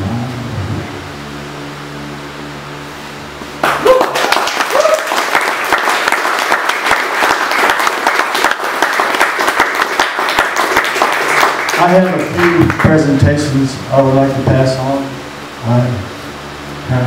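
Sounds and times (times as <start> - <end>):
audience cheers: 3.6 - 6.2
audience applause: 3.6 - 13.2.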